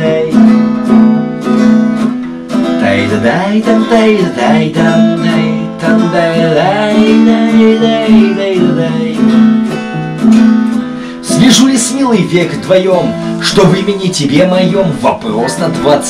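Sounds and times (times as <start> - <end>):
person singing wordless melody: 0.0 - 1.4, 2.8 - 10.3, 10.9 - 16.0
acoustic guitar strumming: 0.0 - 16.0.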